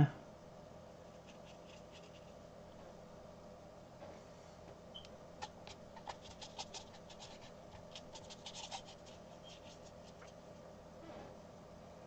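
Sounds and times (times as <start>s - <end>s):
brush scraping on rough paper: 1.1s - 2.4s, 5.4s - 10.4s.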